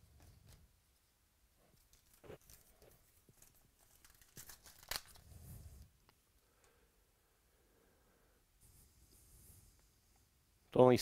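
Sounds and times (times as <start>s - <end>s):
foil wrapper tearing and crinkling: 1.9s - 5.3s.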